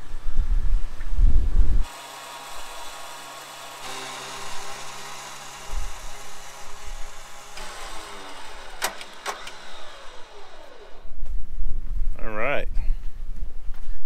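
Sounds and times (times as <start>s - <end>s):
winch motor whining: 1.8s - 11.2s
sharp clicks: 7.6s - 10.7s.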